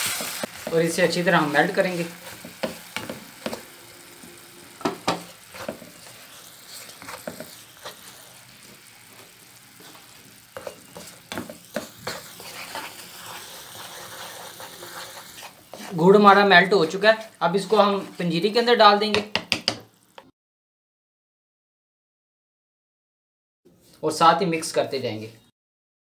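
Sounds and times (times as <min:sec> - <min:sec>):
wooden spatula scraping a pan: 0:00.0 - 0:18.7
syrup sizzling in a frying pan: 0:00.0 - 0:20.2.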